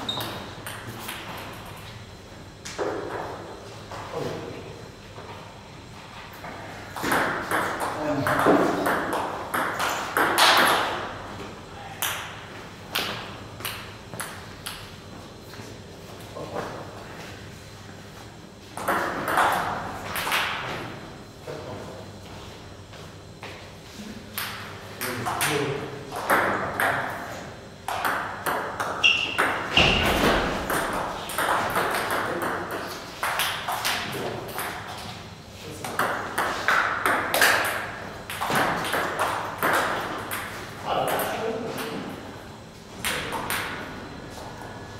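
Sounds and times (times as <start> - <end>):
table tennis balls knocking: 6.9 - 11.0, 18.6 - 20.8, 24.3 - 35.1, 35.8 - 42.1.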